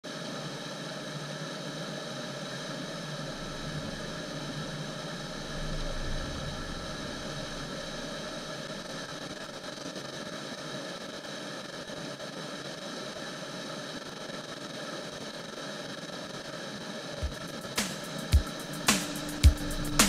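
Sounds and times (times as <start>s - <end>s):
deep water rumble: 3.1s - 9.5s.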